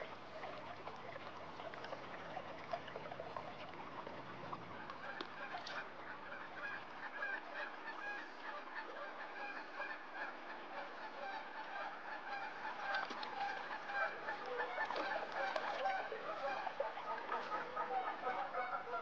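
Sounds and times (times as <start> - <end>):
river water flowing: 0.0 - 19.0
birds chirping and clucking: 4.9 - 19.0.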